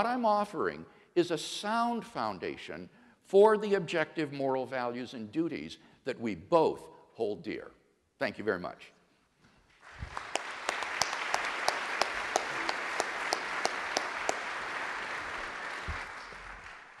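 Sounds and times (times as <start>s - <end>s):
sharp close claps: 9.7s - 17.0s
audience applause: 9.8s - 17.0s.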